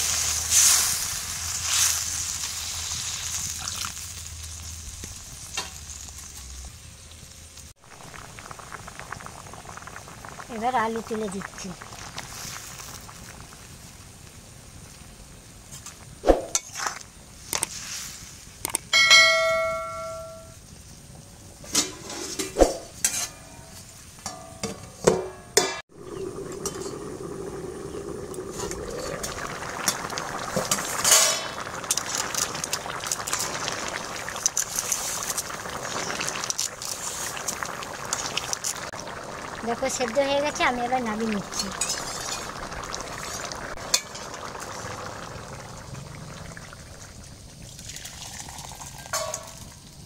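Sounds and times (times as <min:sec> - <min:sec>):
curry bubbling: 0:07.8 - 0:15.2, 0:25.9 - 0:50.0
ladle and lid clanking on pot: 0:21.7 - 0:23.6, 0:24.2 - 0:25.8, 0:30.6 - 0:31.6, 0:49.0 - 0:49.7.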